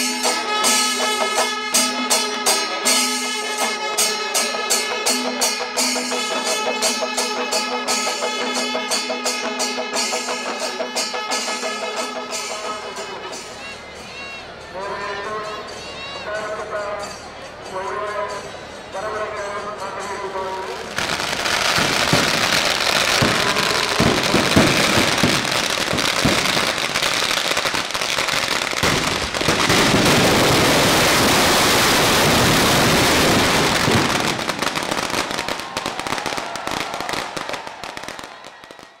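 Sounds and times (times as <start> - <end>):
firecracker crackle: 20.7 - 39.0
heavy firework bangs: 21.0 - 39.0.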